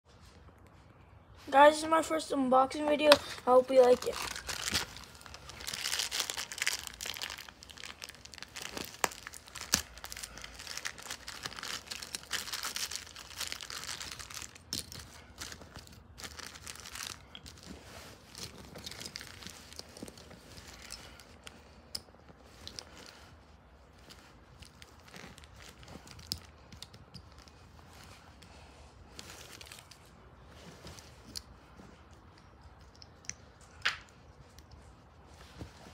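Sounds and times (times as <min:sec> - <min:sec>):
plastic rustling: 0:03.0 - 0:33.6
plastic wrapper tearing and crumpling: 0:03.8 - 0:20.2.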